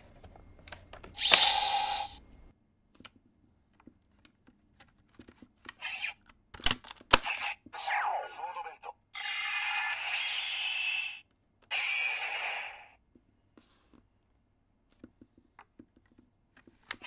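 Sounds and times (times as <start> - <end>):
electronic toy sound effect: 1.2 - 2.2, 5.8 - 6.2, 7.2 - 13.0
sharp plastic clacks: 3.0 - 7.4.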